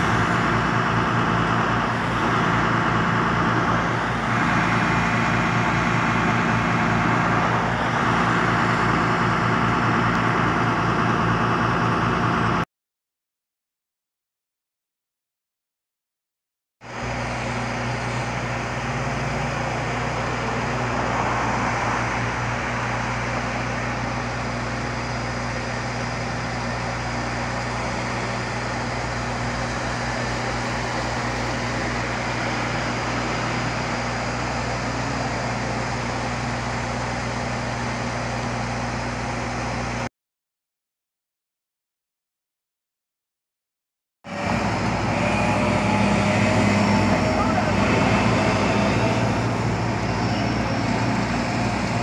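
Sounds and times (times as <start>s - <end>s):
road noise: 0.0s - 12.6s, 16.8s - 40.1s, 44.2s - 52.0s
engine drone: 0.0s - 12.7s, 16.8s - 40.1s, 44.2s - 52.0s
vehicle passing: 44.3s - 52.0s.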